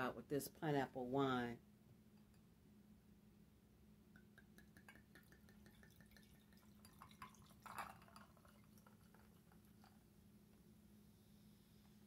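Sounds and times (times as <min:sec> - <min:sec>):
wine pouring into a glass: 0:04.2 - 0:10.0
dripping and trickling: 0:04.6 - 0:10.0.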